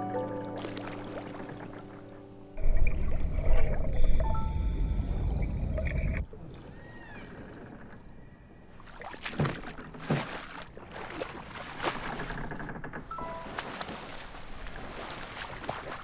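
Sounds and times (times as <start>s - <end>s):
water splashing: 0.5s - 4.3s, 8.7s - 12.6s, 13.2s - 16.0s.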